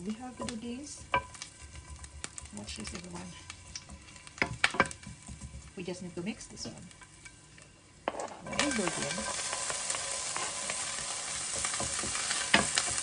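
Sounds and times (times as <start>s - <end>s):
wooden spoon stirring: 0.0s - 7.5s
onion sizzling in hot oil: 0.0s - 13.0s.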